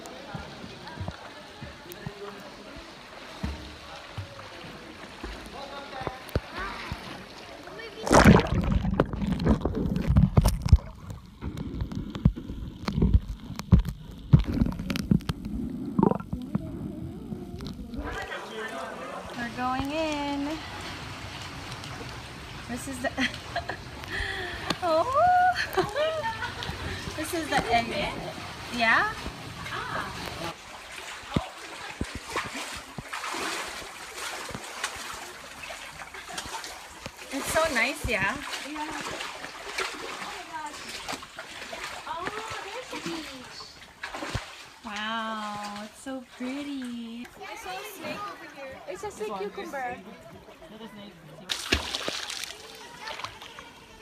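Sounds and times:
seawater splashing among rocks: 0:03.2 - 0:16.4, 0:25.8 - 0:48.3, 0:51.4 - 0:53.7
underwater clicks and knocks: 0:08.1 - 0:16.9
muffled underwater rumble: 0:08.1 - 0:18.3.

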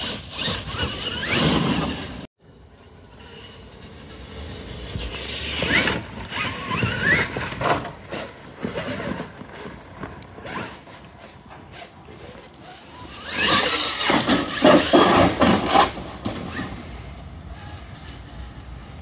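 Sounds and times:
electric motor whining: 0:00.0 - 0:02.3, 0:11.7 - 0:15.0.

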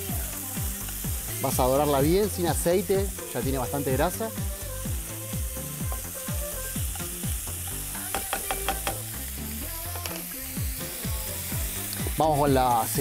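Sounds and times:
background music with steady beat: 0:00.0 - 0:13.0
pancetta sizzling in a pan: 0:00.0 - 0:13.0
spatula stirring in a pan: 0:05.6 - 0:09.2.

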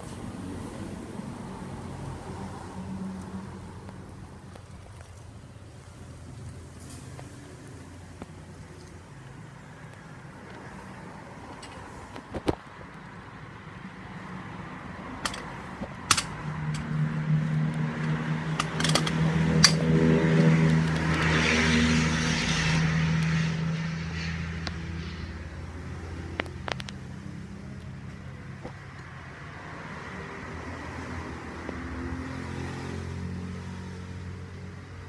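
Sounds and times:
vehicle passing by: 0:00.0 - 0:04.5, 0:13.3 - 0:35.0
metallic clicks: 0:15.2 - 0:17.0, 0:18.0 - 0:19.9.

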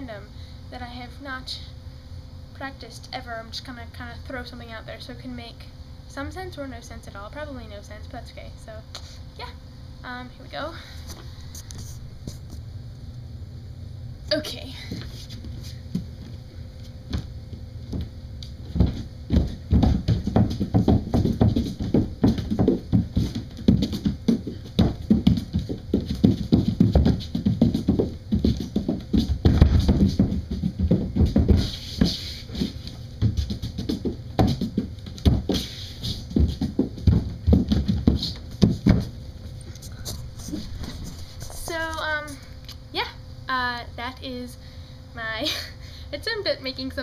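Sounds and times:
bare feet stamping on wooden floor: 0:17.0 - 0:39.6.

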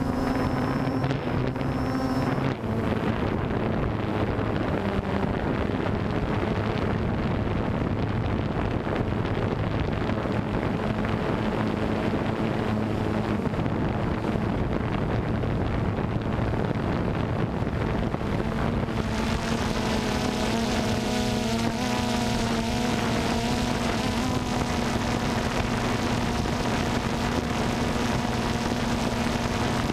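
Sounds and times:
drone propellers humming: 0:00.0 - 0:29.9
wind noise on microphone: 0:00.0 - 0:29.9.

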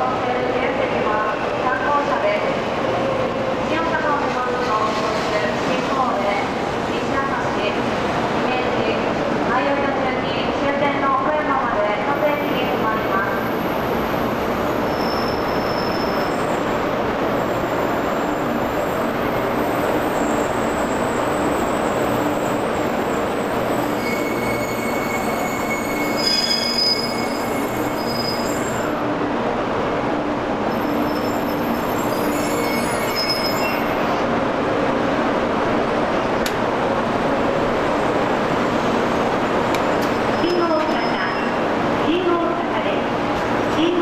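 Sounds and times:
train brakes squealing: 0:14.8 - 0:16.6, 0:23.6 - 0:28.9, 0:30.7 - 0:34.2, 0:40.3 - 0:41.6.

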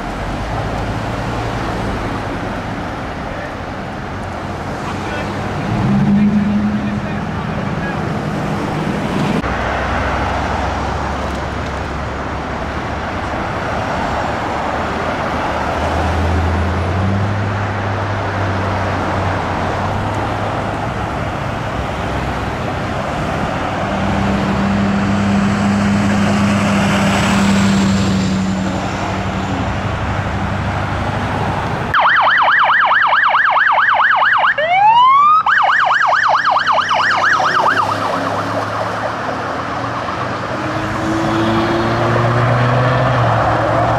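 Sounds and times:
diesel engines running: 0:00.0 - 0:32.1
vehicles passing: 0:00.0 - 0:43.9
siren yelping: 0:31.9 - 0:40.4.

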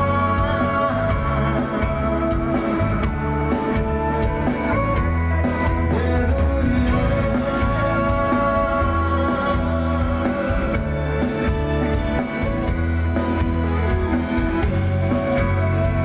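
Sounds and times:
live band playing: 0:00.0 - 0:16.0.

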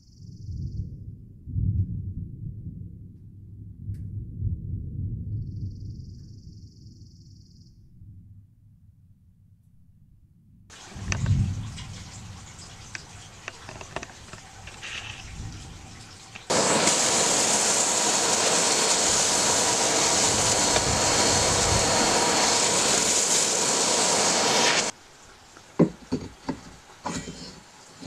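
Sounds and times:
electric power tool running: 0:16.5 - 0:24.9
wooden knocks and clicks: 0:25.8 - 0:27.2.

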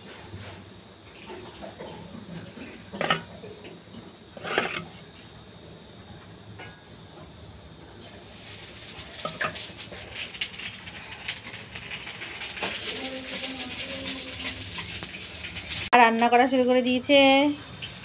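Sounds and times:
metal spoon scraping steel pot: 0:02.9 - 0:03.3, 0:04.4 - 0:05.0
steady hiss: 0:07.9 - 0:15.9.

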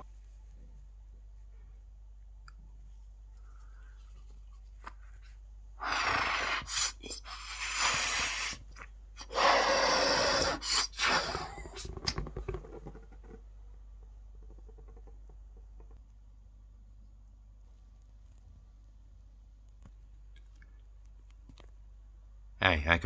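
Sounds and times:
balloon being blown up by mouth: 0:05.8 - 0:13.3.

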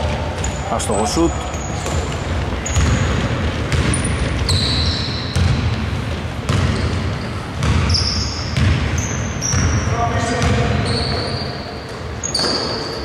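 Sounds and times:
basketball bouncing on court: 0:00.0 - 0:13.0
sneakers squeaking on court: 0:00.0 - 0:13.0.

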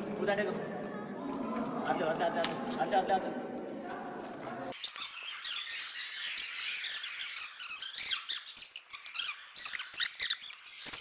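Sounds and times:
high-pitched squeaks and chirps: 0:04.7 - 0:11.0.

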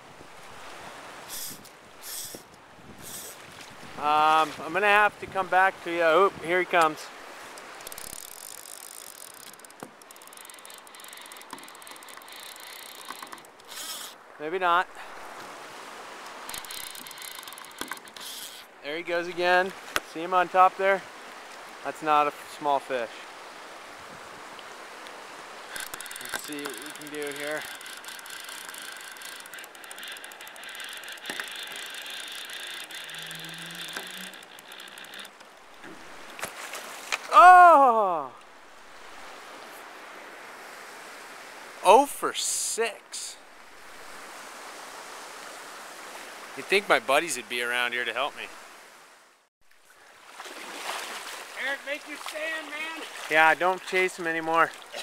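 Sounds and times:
fishing reel drag clicking: 0:01.3 - 0:03.4, 0:07.5 - 0:14.2, 0:16.2 - 0:18.7, 0:25.7 - 0:36.4.

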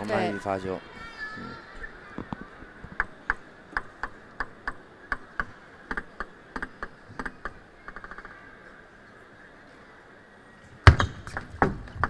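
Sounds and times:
table tennis ball clicking: 0:02.9 - 0:08.4.

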